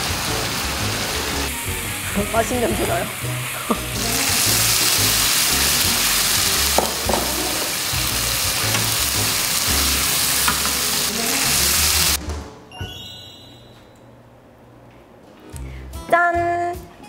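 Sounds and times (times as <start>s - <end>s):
pork sizzling in frying pan: 0.0s - 12.2s
background music with bass: 0.0s - 13.0s
spatula knocking pan: 6.7s - 7.8s.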